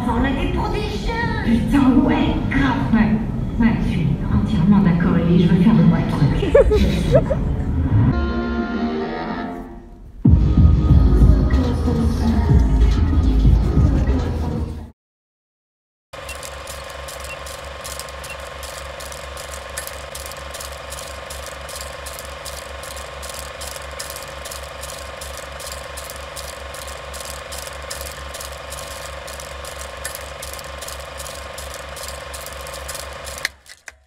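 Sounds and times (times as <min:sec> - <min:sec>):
film projector clatter: 0:16.2 - 0:34.0
projector hum: 0:16.2 - 0:34.0.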